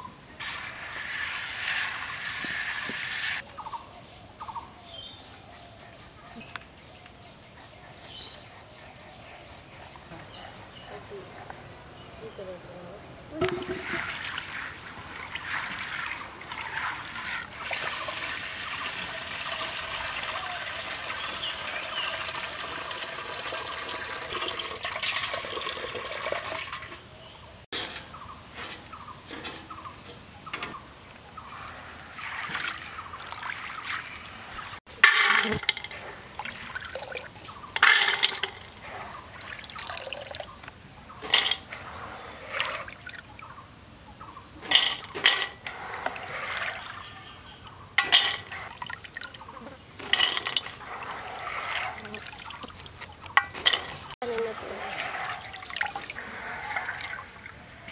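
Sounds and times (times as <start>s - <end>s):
water pouring into metal pot: 13.6s - 26.9s, 36.0s - 40.5s, 50.0s - 57.6s.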